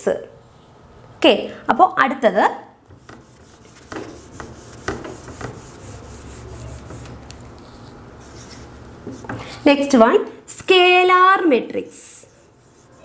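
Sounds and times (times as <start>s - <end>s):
whiteboard being wiped: 2.9s - 9.6s.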